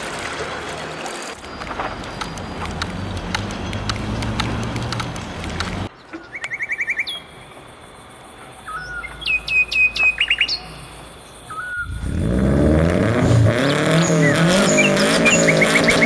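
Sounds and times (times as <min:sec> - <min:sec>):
low rumble with faint ticks: 0:01.4 - 0:06.6
songbirds chirping: 0:01.4 - 0:12.3, 0:13.5 - 0:16.0
downward-sliding bird whistles: 0:11.5 - 0:12.1, 0:14.0 - 0:16.0.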